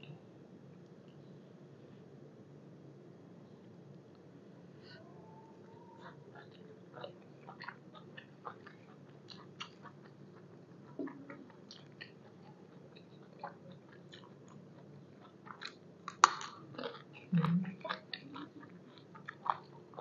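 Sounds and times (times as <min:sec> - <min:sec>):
person chewing food: 0:05.7 - 0:20.0.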